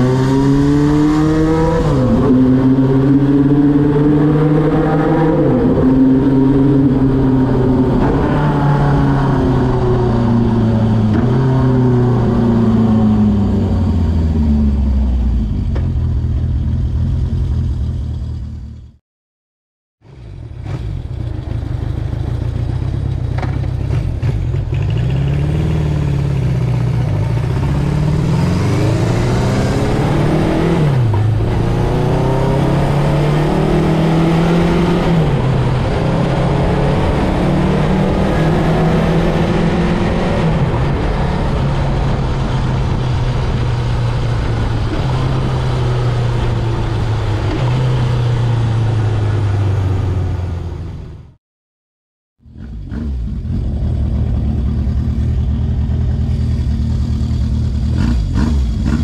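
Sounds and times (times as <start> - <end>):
motorcycle engine idling: 20.3 - 24.8.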